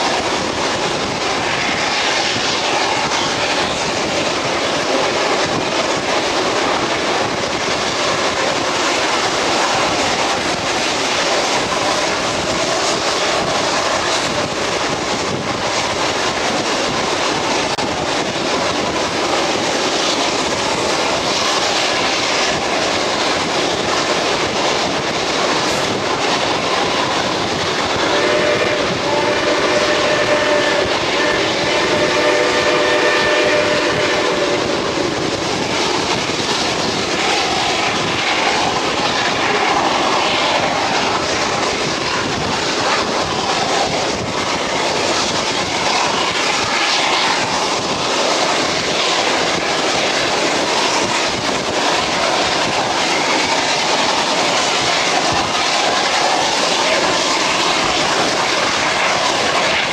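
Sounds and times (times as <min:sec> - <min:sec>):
train wind and wheel noise: 0:00.0 - 0:59.9
train horn: 0:28.0 - 0:34.8.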